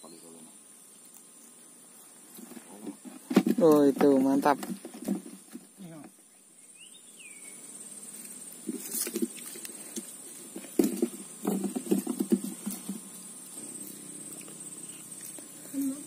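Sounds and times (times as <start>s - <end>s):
soft knocks and rustling: 10.5s - 13.1s.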